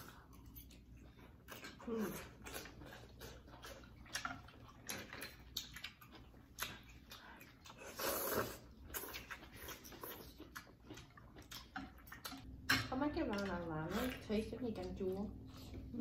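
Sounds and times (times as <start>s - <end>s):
slurping and chewing: 0.0s - 12.5s.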